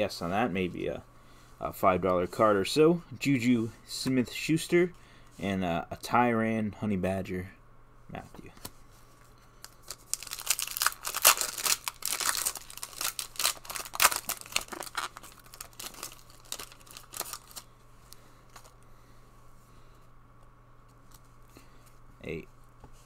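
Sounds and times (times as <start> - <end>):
faint handling of cards: 8.1 - 23.0
foil wrapper tearing and crinkling: 9.6 - 17.7.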